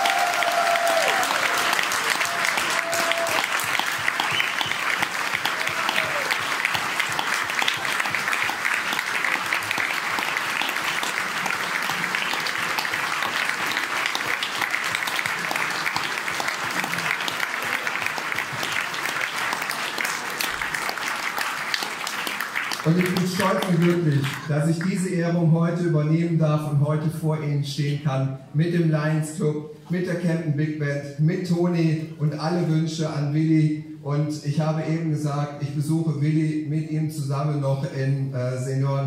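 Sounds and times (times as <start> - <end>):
audience applauding: 0.0 - 24.6.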